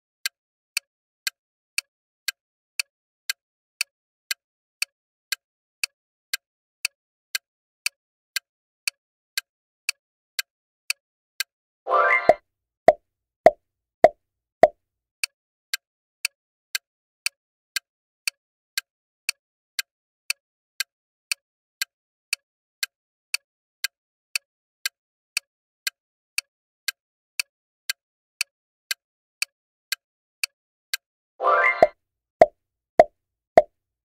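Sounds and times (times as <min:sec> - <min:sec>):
clock ticking countdown: 0:12.1 - 0:13.0, 0:31.6 - 0:32.0
pop sound effects: 0:12.1 - 0:13.0, 0:31.6 - 0:31.9.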